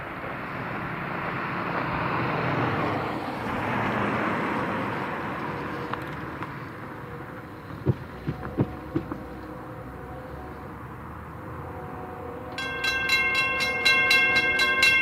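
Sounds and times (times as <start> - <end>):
car driving past: 0.6 - 12.6.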